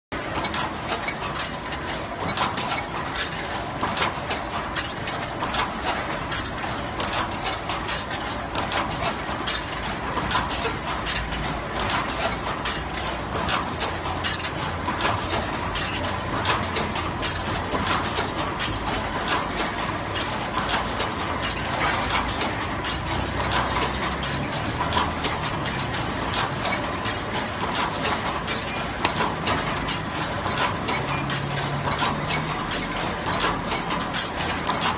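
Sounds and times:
welding machine clatter: 0.2 - 34.9.

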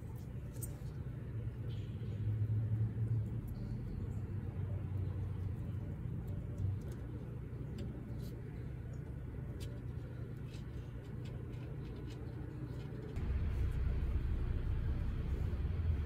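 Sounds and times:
low rumble: 13.2 - 16.0.

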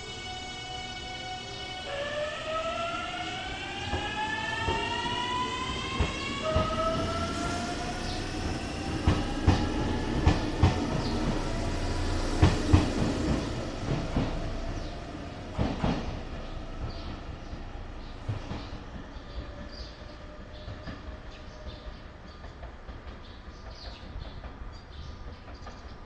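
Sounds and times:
electric train inverter whining: 0.0 - 15.0.

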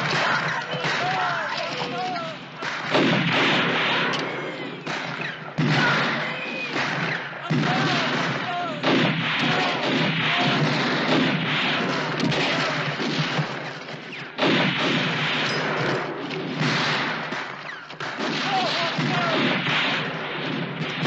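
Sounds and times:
men yelling: 0.0 - 2.8, 7.4 - 8.8, 9.4 - 10.8, 18.4 - 19.4
booms: 0.0 - 21.0
rifle gunfire: 0.0 - 21.0.

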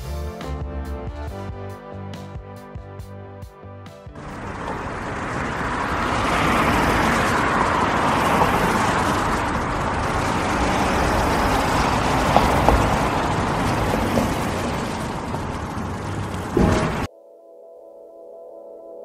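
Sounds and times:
rain falling through woodland: 4.2 - 17.1.

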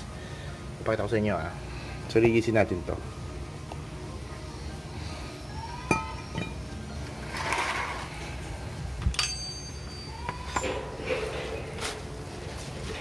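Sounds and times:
metallic clinks and knocks: 9.1 - 11.5.

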